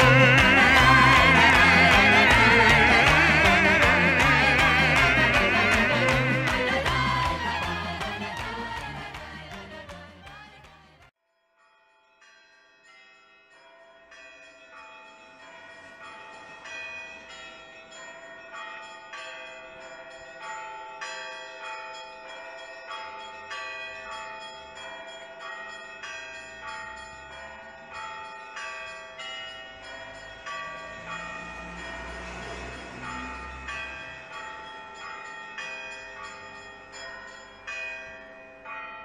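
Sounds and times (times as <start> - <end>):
church bells ringing: 0.0 - 8.4, 11.9 - 39.0.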